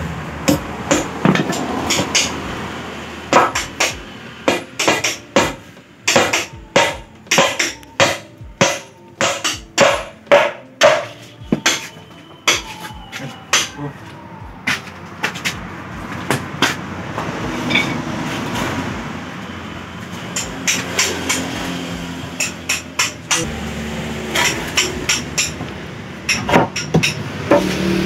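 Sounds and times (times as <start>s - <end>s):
hammer knocking on wooden frame: 3.3s - 11.9s.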